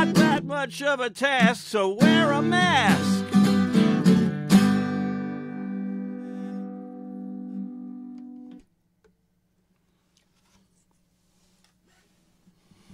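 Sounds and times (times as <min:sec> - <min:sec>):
acoustic guitar chord ringing: 0:00.0 - 0:08.5.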